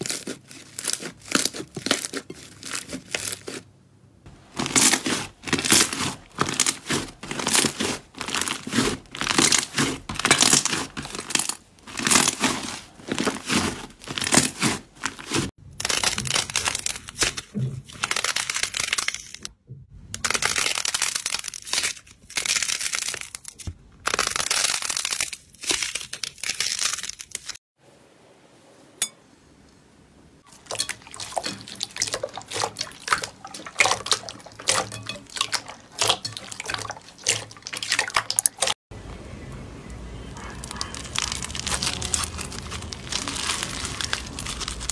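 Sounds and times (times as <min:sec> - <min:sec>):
hands squishing slime: 0:00.0 - 0:03.7, 0:04.4 - 0:19.4, 0:30.5 - 0:38.8, 0:40.4 - 0:44.9.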